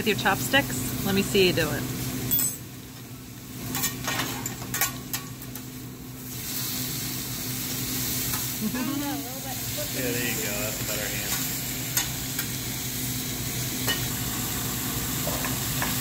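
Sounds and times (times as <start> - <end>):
food sizzling on a griddle: 0.0 - 16.0
person speaking: 9.8 - 11.4.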